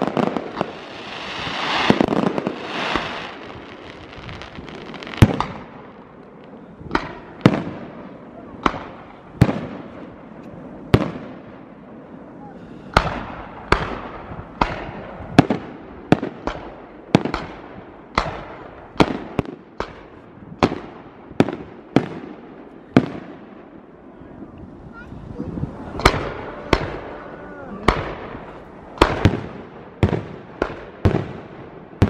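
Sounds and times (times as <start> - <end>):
fireworks bangs: 0.0 - 32.0
rumble after fireworks: 0.0 - 32.0.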